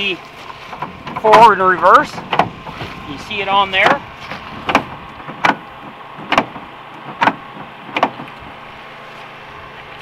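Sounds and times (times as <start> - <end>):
footsteps on gravel: 0.0 - 6.2, 9.0 - 10.0.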